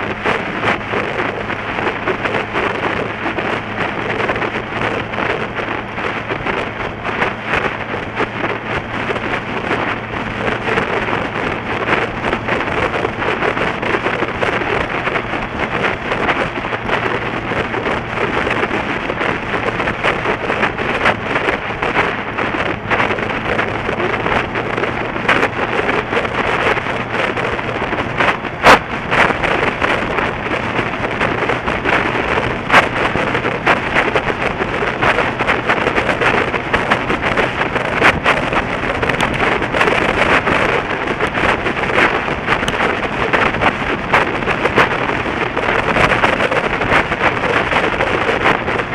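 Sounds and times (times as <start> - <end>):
low engine hum: 0.0 - 48.9
wind buffeting microphone: 0.0 - 48.9.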